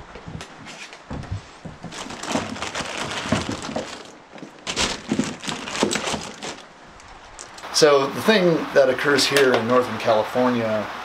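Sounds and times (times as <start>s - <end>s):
knocks and clatter of handling: 0.2s - 7.6s.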